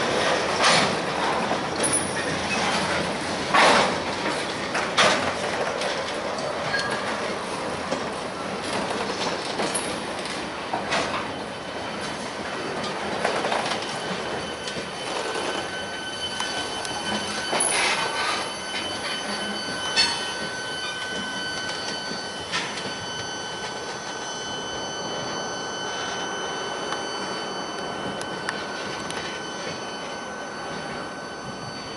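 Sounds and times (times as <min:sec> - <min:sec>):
freight train rolling past: 0:00.0 - 0:31.9
high wheel squeal: 0:11.2 - 0:31.9.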